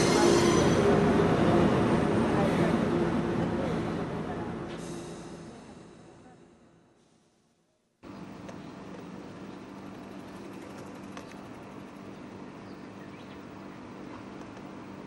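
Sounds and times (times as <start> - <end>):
electric tram humming: 0.0 - 7.0, 8.0 - 15.0
street noise: 0.0 - 7.0.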